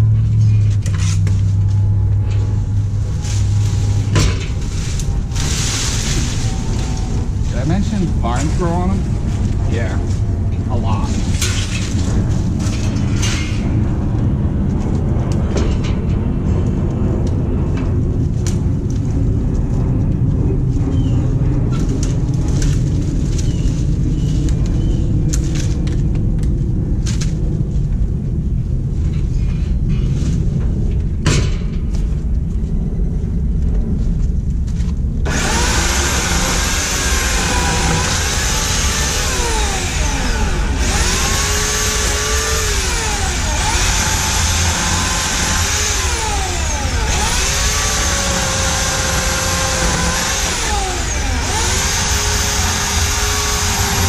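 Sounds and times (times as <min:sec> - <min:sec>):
branches crackling and rustling: 0:00.0 - 0:13.2, 0:20.9 - 0:28.0
steady low rumble: 0:00.0 - 0:54.0
electric chainsaw whine: 0:35.3 - 0:54.0.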